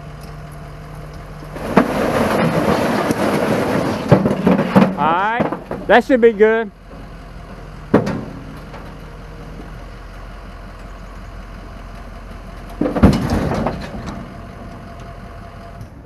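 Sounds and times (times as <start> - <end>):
dump truck idling: 0.0 - 16.0
truck bed clunk and stone rattle: 1.4 - 9.8, 11.9 - 16.0.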